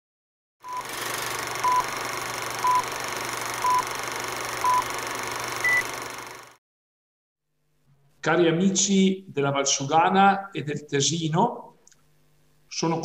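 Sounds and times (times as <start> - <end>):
short countdown beeps: 3.6 - 3.8, 4.6 - 4.8
higher-pitched beep: 5.6 - 5.9.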